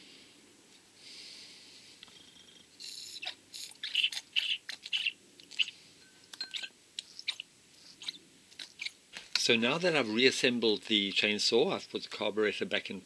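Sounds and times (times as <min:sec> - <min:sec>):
rubber bulb squeaks and squelches: 0:02.2 - 0:05.7, 0:06.3 - 0:09.0.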